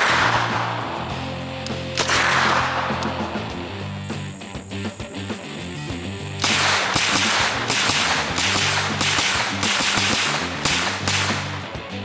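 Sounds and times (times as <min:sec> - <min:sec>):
gunshots: 0:00.0 - 0:03.6, 0:06.4 - 0:11.8.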